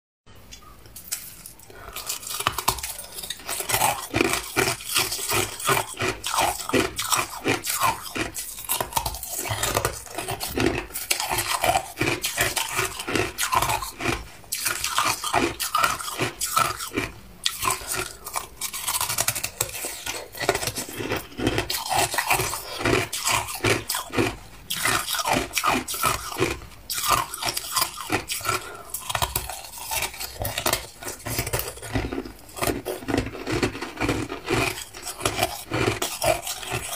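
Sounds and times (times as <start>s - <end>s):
ice being crunched: 1.1s - 17.1s, 17.7s - 36.9s.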